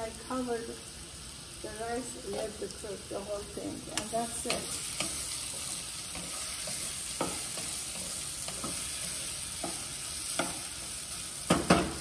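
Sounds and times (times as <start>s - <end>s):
beans sizzling in oil: 0.0s - 12.0s
wooden spatula knocking pan: 11.5s - 12.0s.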